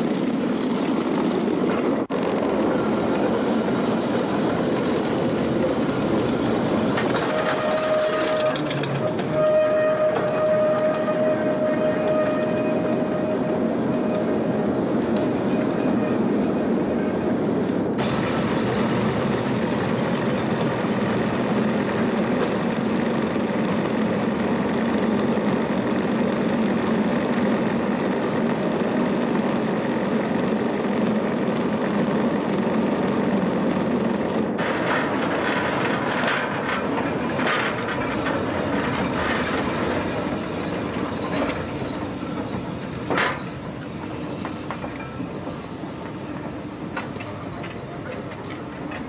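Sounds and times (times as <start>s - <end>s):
tram rolling on rails: 0.0s - 49.0s
cable running over rollers: 5.7s - 16.1s
clicks and rattles: 7.0s - 9.3s.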